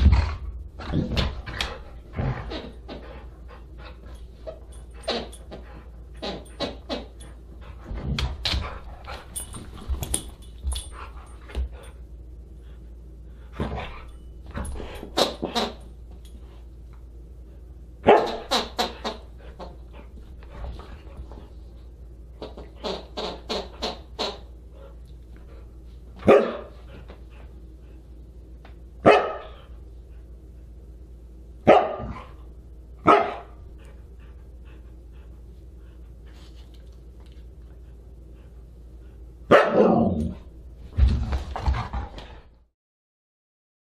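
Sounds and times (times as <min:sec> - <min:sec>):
dog barking: 0:18.0 - 0:18.4, 0:26.2 - 0:26.7, 0:29.0 - 0:29.5, 0:31.7 - 0:32.2, 0:33.0 - 0:33.5, 0:39.5 - 0:40.0.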